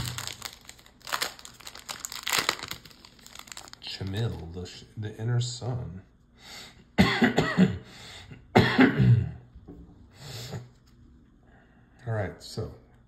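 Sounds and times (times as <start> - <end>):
man coughing: 7.0 - 9.4.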